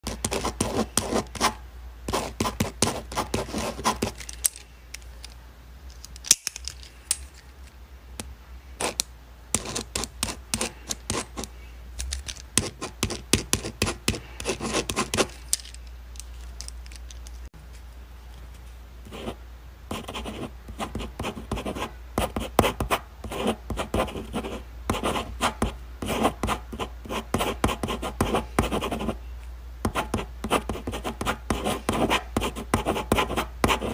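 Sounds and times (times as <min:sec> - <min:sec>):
pen scratching on paper: 0:00.0 - 0:04.2, 0:09.6 - 0:11.5, 0:12.6 - 0:15.3, 0:19.1 - 0:29.2, 0:29.9 - 0:33.9
steady low hum: 0:00.0 - 0:33.9.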